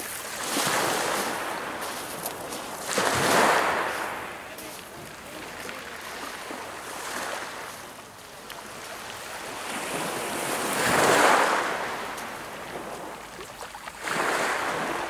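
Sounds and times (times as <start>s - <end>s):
waves washing on shingle beach: 0.0s - 15.0s.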